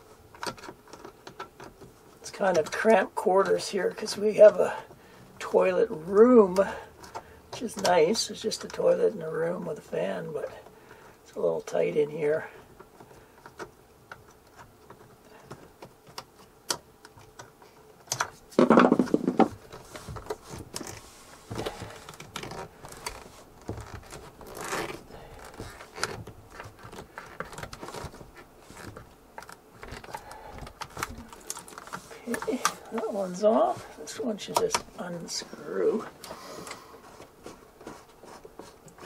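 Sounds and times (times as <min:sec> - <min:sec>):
hands handling a hose: 0:12.8 - 0:35.1.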